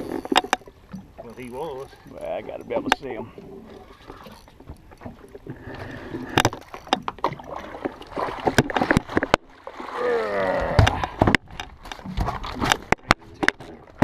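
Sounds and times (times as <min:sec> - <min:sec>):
water splashing: 0:00.0 - 0:13.0.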